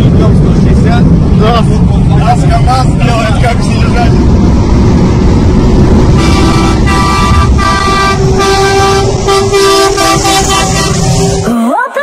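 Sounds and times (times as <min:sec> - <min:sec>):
truck engine rumbling: 0:00.0 - 0:11.8
vehicle horn blasts: 0:06.2 - 0:11.5.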